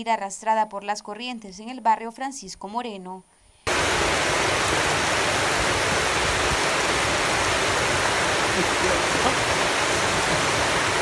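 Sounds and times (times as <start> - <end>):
floodwater rushing down a street: 3.7 - 11.0.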